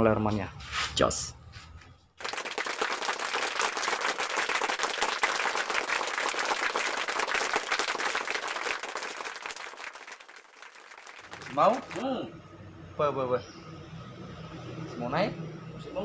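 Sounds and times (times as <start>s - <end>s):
crowd applause: 2.2s - 12.0s.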